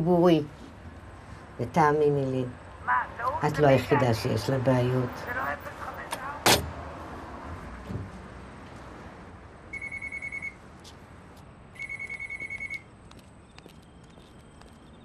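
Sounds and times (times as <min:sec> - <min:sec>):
payphone ringing: 0:09.7 - 0:10.6, 0:11.8 - 0:12.8.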